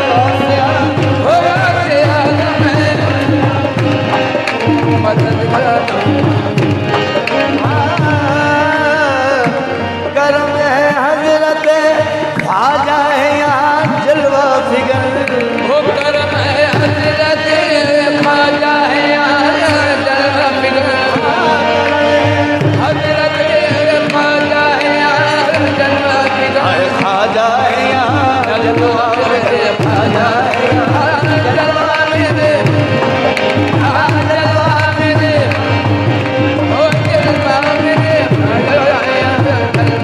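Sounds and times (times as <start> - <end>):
harmoniums: 0.0 - 40.0
tabla and hand drums: 0.0 - 40.0
handclapping: 11.6 - 40.0.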